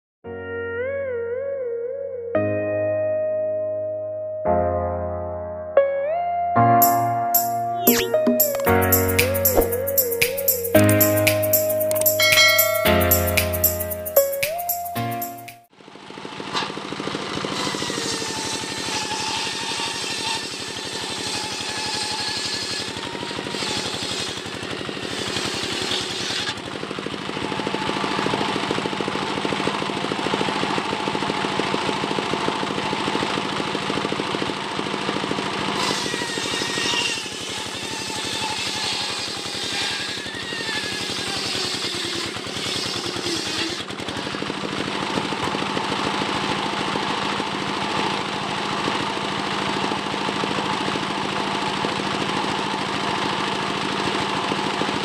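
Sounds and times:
circular saw ripping wood: 0:16.0 - 0:46.5.

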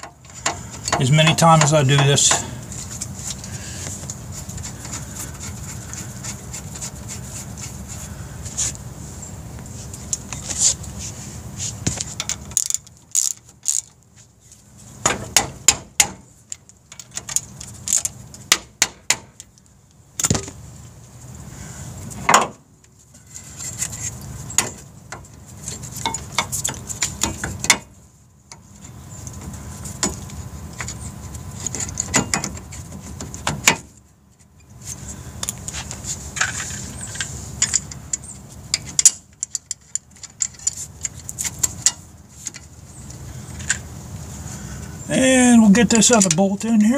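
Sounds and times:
rustling: 0:00.3 - 0:15.0
metal clatter and knocks: 0:31.6 - 0:34.0.

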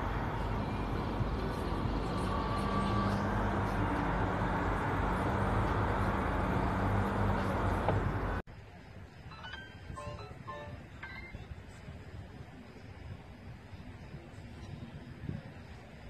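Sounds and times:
low engine hum: 0:00.0 - 0:08.5
traffic rumble: 0:00.0 - 0:16.0.

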